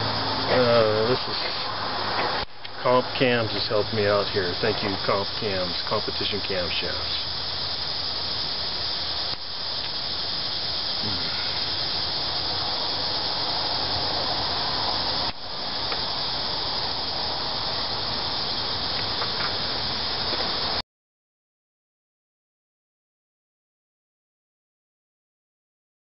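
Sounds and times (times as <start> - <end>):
insect chorus drone: 0.0 - 20.8.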